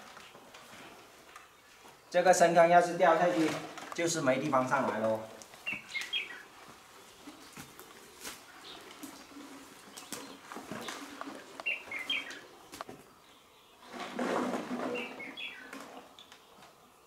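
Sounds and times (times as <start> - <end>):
rustling through brush: 3.0 - 12.9
small birds chirping: 3.8 - 14.0, 14.9 - 17.0.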